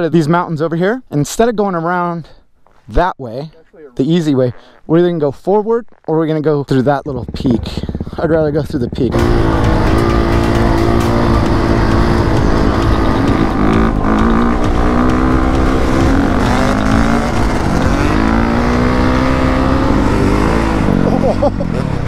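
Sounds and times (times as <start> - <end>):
dirt bike engine at speed: 6.7 - 22.0.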